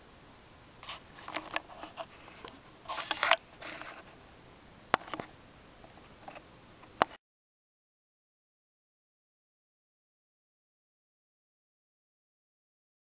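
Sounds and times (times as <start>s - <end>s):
paper rustling: 0.8s - 4.1s.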